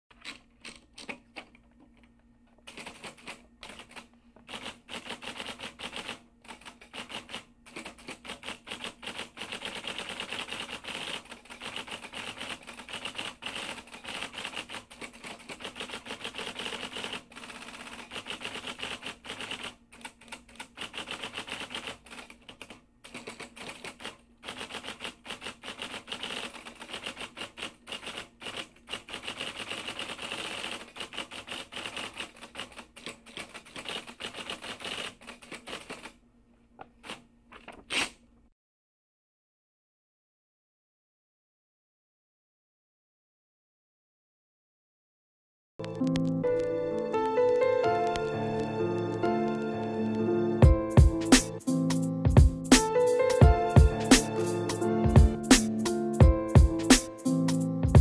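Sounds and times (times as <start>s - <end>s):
typewriter keys clacking: 2.7s - 36.2s.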